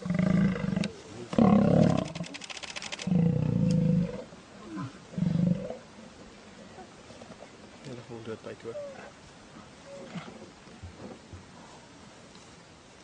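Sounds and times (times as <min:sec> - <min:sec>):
lions growling and snarling: 0:00.0 - 0:05.8.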